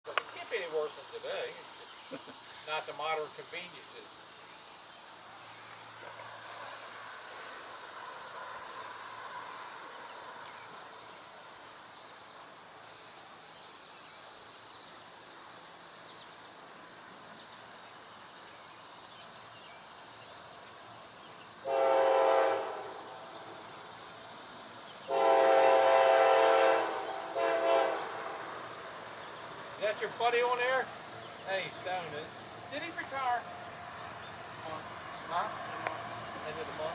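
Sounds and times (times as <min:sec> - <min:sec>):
high insect buzz: 0:00.1 - 0:36.9
locomotive air horn blasts: 0:21.6 - 0:23.1, 0:25.1 - 0:28.6.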